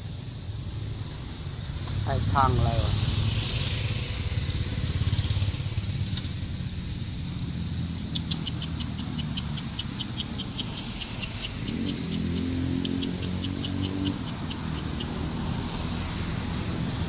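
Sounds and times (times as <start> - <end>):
scooter engine idling: 0.0 - 15.4.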